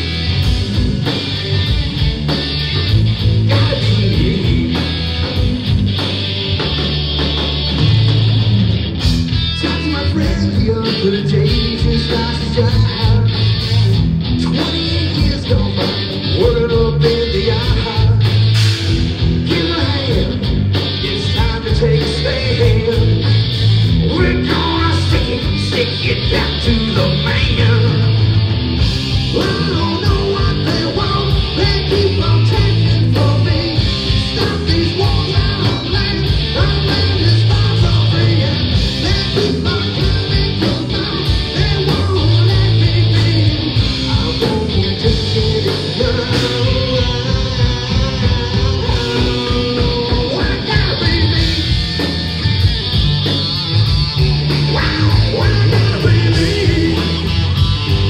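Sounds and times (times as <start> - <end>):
distorted electric guitar: 0.0 - 58.0
drum kit: 0.0 - 58.0
person singing: 3.4 - 5.3, 9.6 - 13.5, 14.4 - 18.4, 24.0 - 28.2, 29.3 - 52.1, 54.2 - 58.0.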